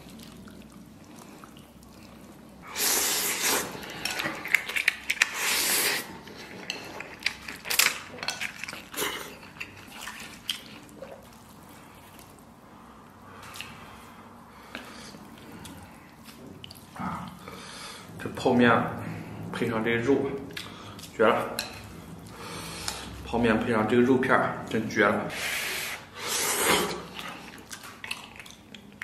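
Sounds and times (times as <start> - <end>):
wet chewing and smacking: 0.0 - 2.6, 3.7 - 17.6, 20.4 - 23.2, 27.0 - 29.0
slurping noodles: 0.0 - 7.2, 25.3 - 27.6.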